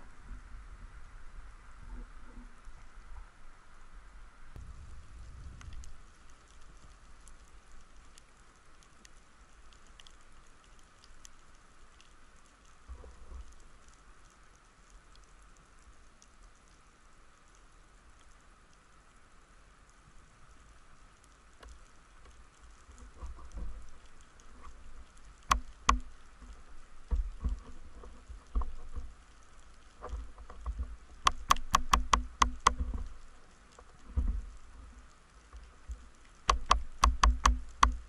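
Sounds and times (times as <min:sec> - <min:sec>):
sharp underwater clicks: 0:21.6 - 0:38.0.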